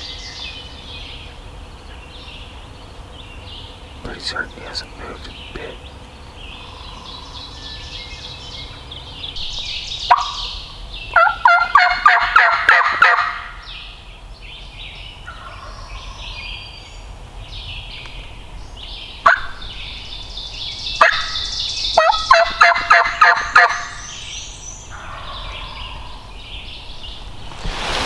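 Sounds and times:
turkey gobbling: 0:10.1 - 0:10.5, 0:11.1 - 0:13.6, 0:15.2 - 0:16.2, 0:19.2 - 0:19.6, 0:21.0 - 0:21.4, 0:22.0 - 0:24.0, 0:24.9 - 0:26.2.

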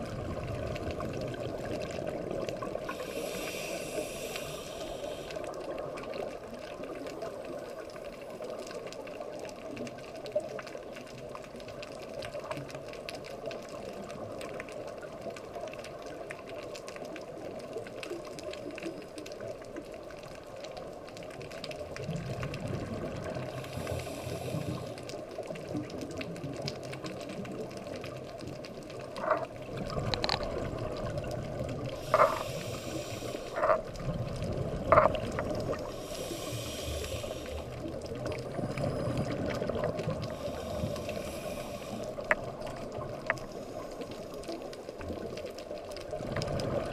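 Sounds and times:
scuba regulator bubbles: 0:00.0 - 0:20.0, 0:20.8 - 0:46.9
underwater watery hiss: 0:02.7 - 0:05.9, 0:23.2 - 0:25.4, 0:31.8 - 0:33.8, 0:35.4 - 0:44.4.

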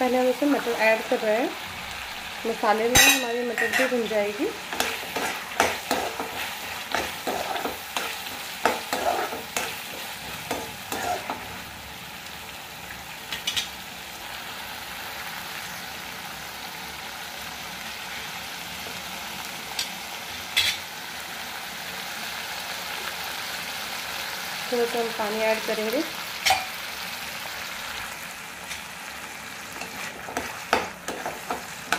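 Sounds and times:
food sizzling: 0:00.0 - 0:31.9
metal spatula scraping: 0:02.9 - 0:11.6, 0:29.7 - 0:31.9.

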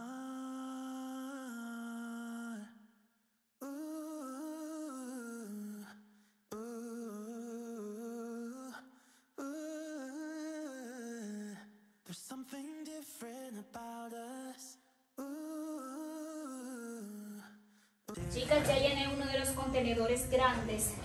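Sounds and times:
song with held vocal notes: 0:00.0 - 0:02.8, 0:18.1 - 0:19.1.

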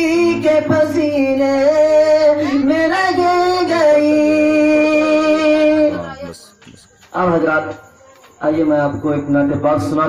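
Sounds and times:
man singing into a microphone: 0:00.0 - 0:06.3.

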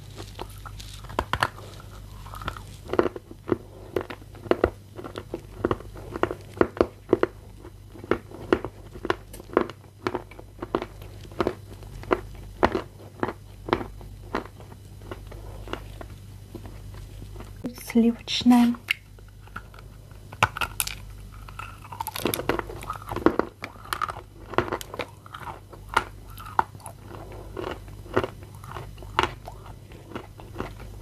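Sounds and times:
crunchy chewing of clay: 0:00.0 - 0:17.7, 0:18.9 - 0:31.0.

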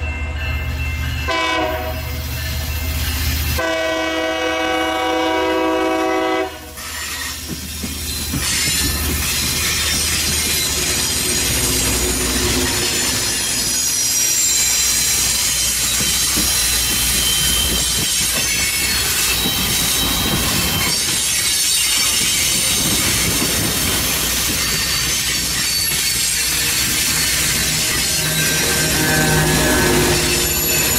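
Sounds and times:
train rumble: 0:00.0 - 0:30.9
high-pitched whine: 0:26.6 - 0:30.9.

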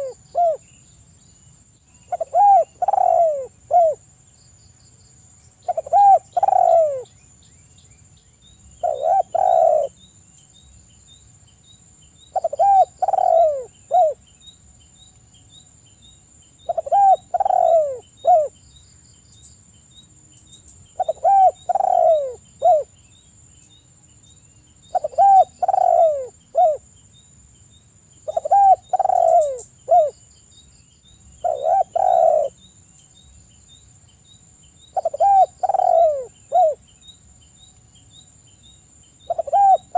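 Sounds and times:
dove cooing: 0:00.0 - 0:00.6, 0:02.1 - 0:04.0, 0:05.6 - 0:07.1, 0:08.8 - 0:10.0, 0:12.3 - 0:14.2, 0:16.7 - 0:18.6, 0:21.0 - 0:22.9, 0:24.9 - 0:26.8, 0:28.3 - 0:30.2, 0:31.4 - 0:32.6, 0:35.0 - 0:36.8, 0:39.3 - 0:39.9.

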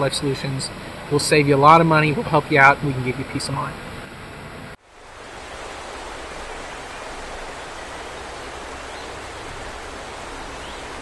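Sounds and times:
waterfall rushing: 0:04.8 - 0:11.0.

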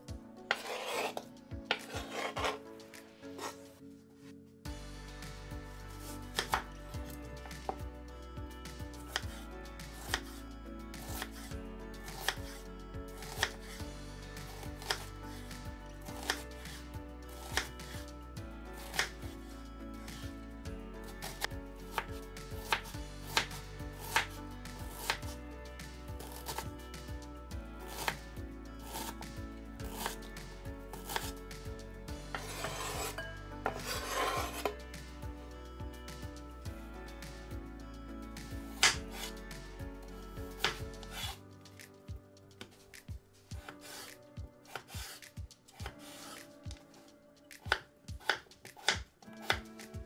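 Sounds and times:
soft background music: 0:00.0 - 0:50.0
knife rasping through carrot: 0:00.5 - 0:02.6, 0:06.0 - 0:06.7, 0:12.1 - 0:13.8, 0:16.1 - 0:18.0, 0:18.8 - 0:19.2, 0:28.8 - 0:29.2, 0:29.8 - 0:30.3, 0:31.0 - 0:31.4, 0:32.3 - 0:34.8, 0:43.6 - 0:46.5
knife striking cutting board: 0:06.4 - 0:06.7, 0:32.3 - 0:34.7, 0:38.7 - 0:39.3, 0:40.6 - 0:41.4.

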